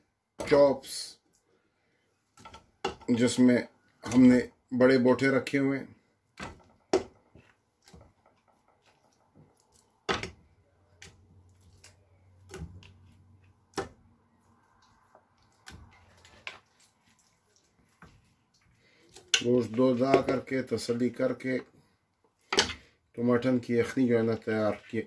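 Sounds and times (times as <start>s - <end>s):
meat thudding in metal pot: 2.4s - 3.1s, 6.3s - 11.4s, 12.4s - 14.1s, 19.2s - 20.5s.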